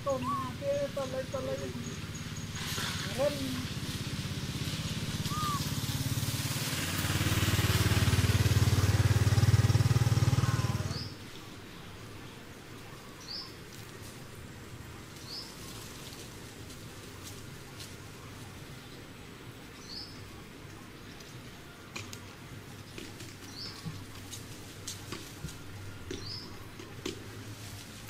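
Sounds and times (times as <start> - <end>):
engine running: 0.0 - 12.2
low outdoor background: 0.0 - 28.0.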